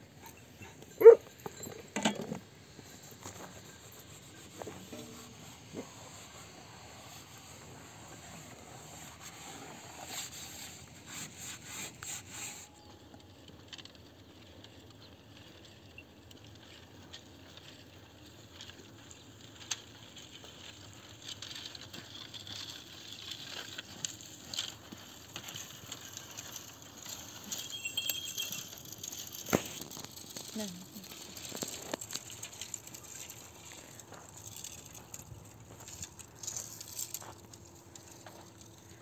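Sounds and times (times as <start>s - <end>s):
dry branches rustling and scraping: 0.0s - 39.0s
footsteps on stony ground: 29.4s - 39.0s.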